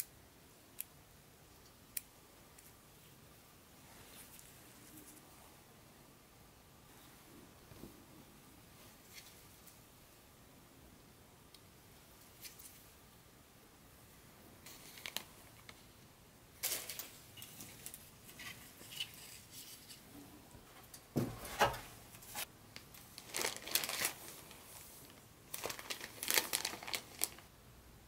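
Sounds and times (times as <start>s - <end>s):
packaging crinkling and rustling: 14.7s - 15.8s, 21.3s - 27.5s.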